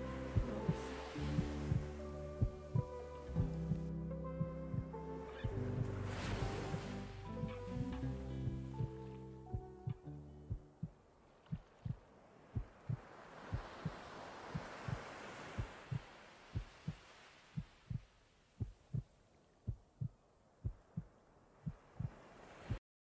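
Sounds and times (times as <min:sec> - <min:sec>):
slow heartbeat: 0:00.0 - 0:22.8
soft rushing noise: 0:11.8 - 0:19.0.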